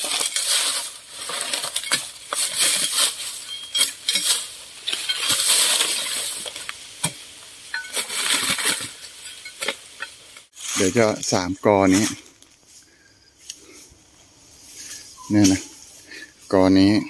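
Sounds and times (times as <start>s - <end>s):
hoe raking dry leaves: 0.0s - 12.9s.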